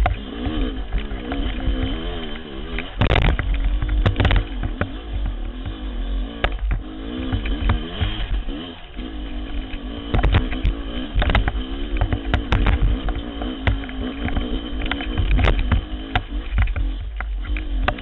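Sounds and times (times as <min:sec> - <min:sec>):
bike striking rocks: 0:00.0 - 0:05.8, 0:10.0 - 0:18.0
dirt bike engine revving: 0:00.0 - 0:18.0.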